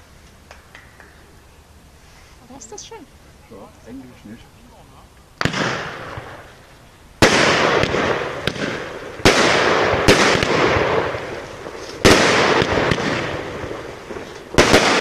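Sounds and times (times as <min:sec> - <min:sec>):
fireworks crackle: 0:00.0 - 0:15.0
fireworks bangs: 0:05.4 - 0:15.0.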